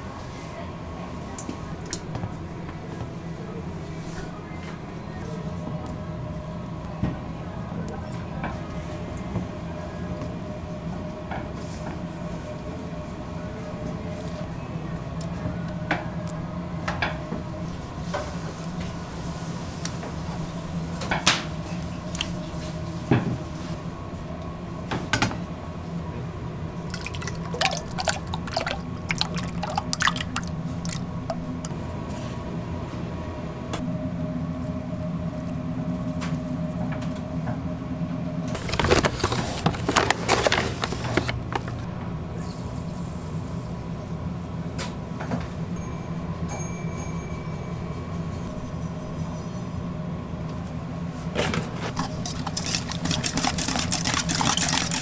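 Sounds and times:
bakery machinery hum: 0.0 - 55.0
sugar pouring into metal bowl: 52.2 - 55.0.

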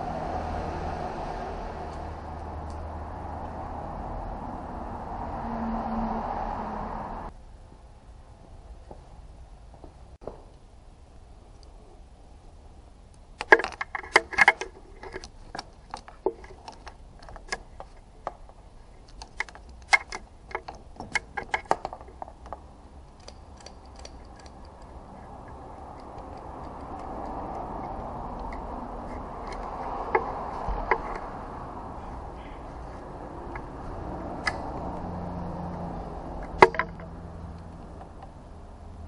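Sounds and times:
low rushing noise: 0.0 - 9.5, 24.5 - 39.0
metal hose clamp clicks: 13.4 - 18.0, 19.0 - 22.3, 23.1 - 27.7.

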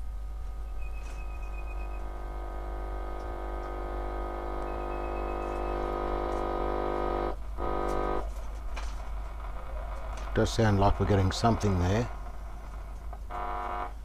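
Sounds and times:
radio speaker buzzing hum: 0.0 - 14.0
faint high whistle: 0.7 - 2.0, 4.7 - 5.9.

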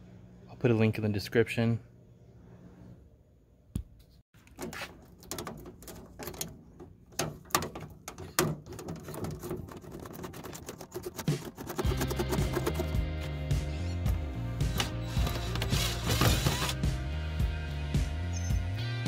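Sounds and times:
hands handling door hardware: 4.4 - 9.9.

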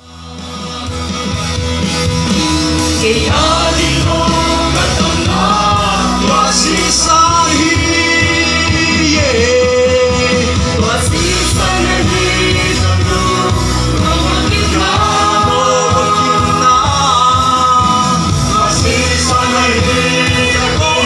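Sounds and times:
band with guitars playing: 0.0 - 21.0
voices singing: 2.9 - 21.0.

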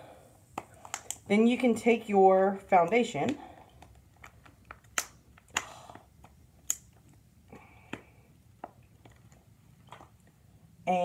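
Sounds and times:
makeup containers clicking: 3.3 - 7.2.

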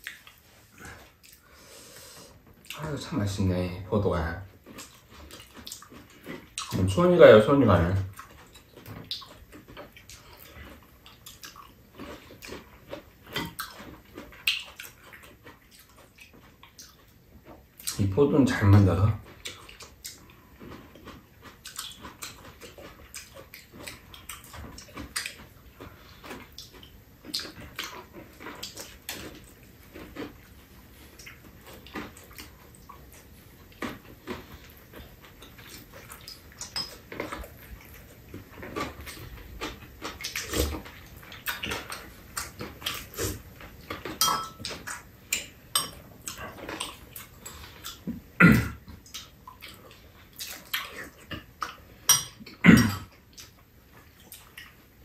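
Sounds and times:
chewing and lip-smacking: 0.0 - 3.2, 4.4 - 18.6, 19.2 - 55.0
spoons clinking against bowls: 44.2 - 44.6, 45.8 - 46.0, 52.1 - 52.4.

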